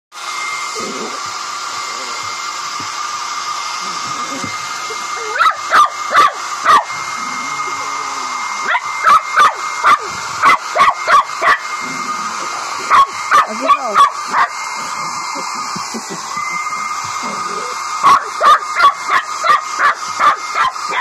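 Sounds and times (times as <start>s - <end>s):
hair dryer running: 0.1s - 21.0s
dog barking: 5.3s - 6.9s, 8.6s - 11.7s, 12.9s - 14.5s, 18.0s - 21.0s.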